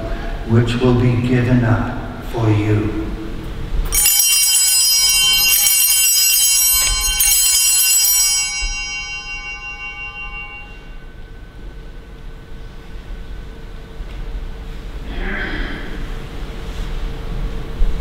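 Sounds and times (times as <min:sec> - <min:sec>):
small high bells ringing: 0:03.9 - 0:11.9.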